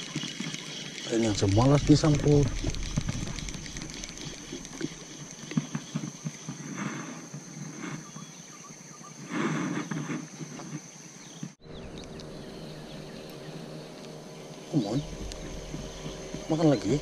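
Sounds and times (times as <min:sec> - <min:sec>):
weed rustling: 0:00.0 - 0:08.6, 0:09.3 - 0:17.0
high-pitched insect whine: 0:00.0 - 0:17.0.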